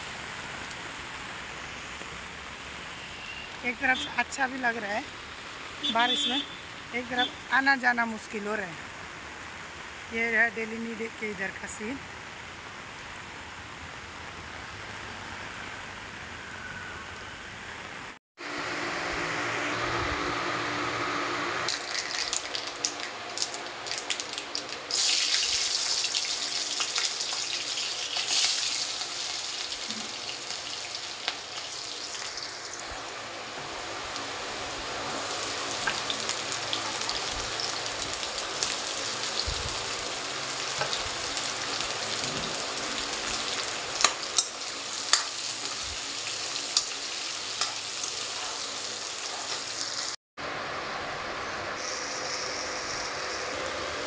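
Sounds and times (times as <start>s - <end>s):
food sizzling in hot oil: 21.7s - 50.2s, 51.8s - 54.0s.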